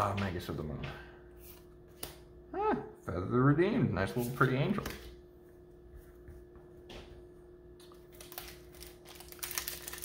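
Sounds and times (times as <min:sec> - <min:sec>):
faint steady hum: 0:00.0 - 0:10.0
cards rustling and clicking: 0:07.9 - 0:10.0.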